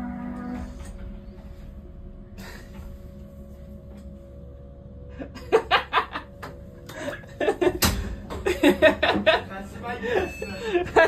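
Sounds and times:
steady electrical hum: 0.0 - 11.0.

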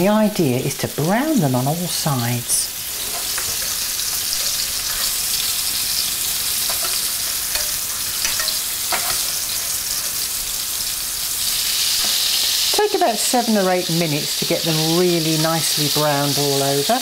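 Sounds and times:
meatballs sizzling in frying pan: 0.0 - 17.0.

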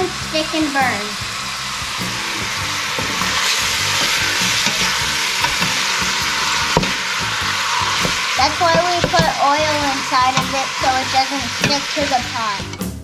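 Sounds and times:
meat sizzling in hot oil: 0.0 - 12.8
wooden spoon stirring: 3.0 - 12.2
spoon knocking on pot: 4.0 - 6.1, 6.7 - 7.0, 8.0 - 9.4.

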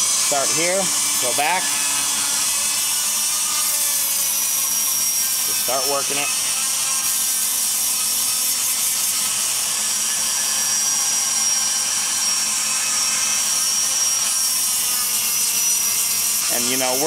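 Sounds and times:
rotary grinder whining: 0.0 - 17.0.

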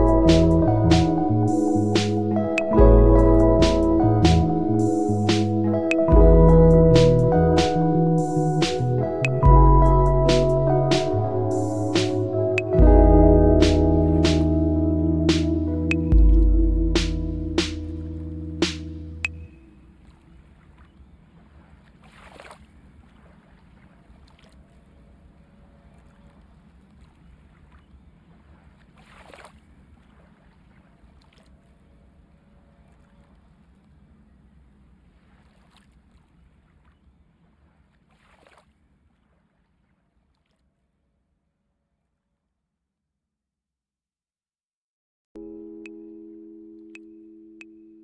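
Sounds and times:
low steady hum: 0.0 - 20.7.

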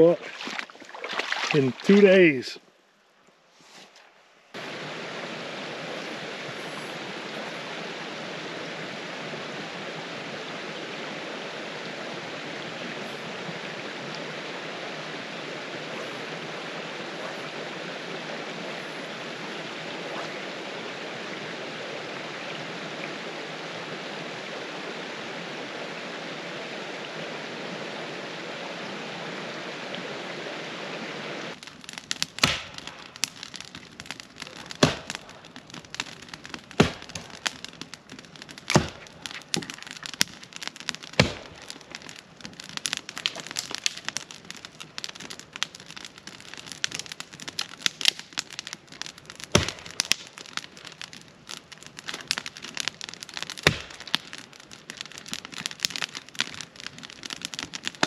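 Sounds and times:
river water rushing over rocks: 4.6 - 31.6.

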